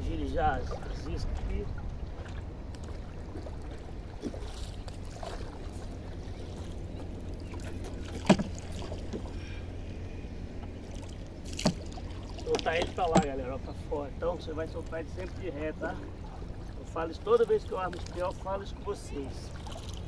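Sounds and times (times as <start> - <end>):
water splashing: 0.0 - 9.9, 10.6 - 20.0
low wind rumble: 0.0 - 20.0
pole knocking on canoe: 8.0 - 9.3.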